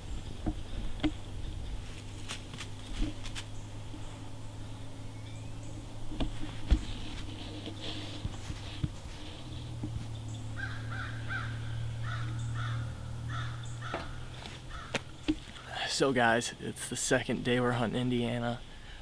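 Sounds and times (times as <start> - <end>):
steady low hum: 0.0 - 19.0
crows cawing: 10.5 - 15.8.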